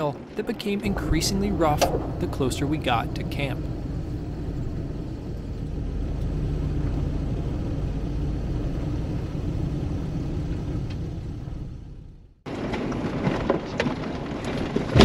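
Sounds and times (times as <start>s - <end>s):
suv engine rumbling under load: 0.0s - 15.0s.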